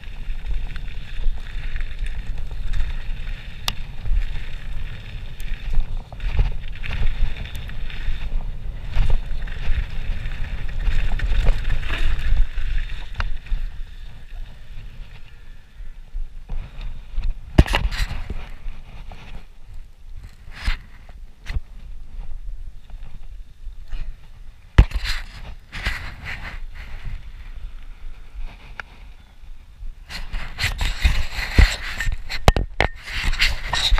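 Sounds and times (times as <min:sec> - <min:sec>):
bike rattling with sharp clicks: 0:00.0 - 0:15.4
tyres crunching over gravel: 0:00.0 - 0:15.5
wind rumbling on microphone: 0:00.0 - 0:33.9.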